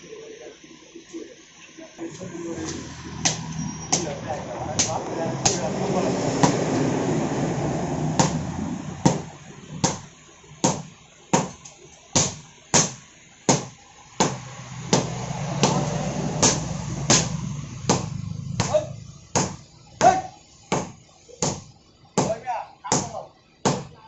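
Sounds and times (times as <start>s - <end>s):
steady low hum: 0.0s - 24.0s
sledgehammers hitting iron on anvil: 9.1s - 11.6s, 12.2s - 24.0s.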